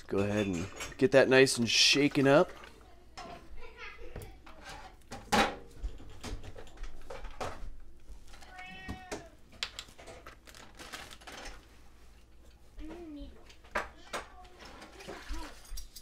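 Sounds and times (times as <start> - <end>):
cat meowing: 8.4 - 9.4.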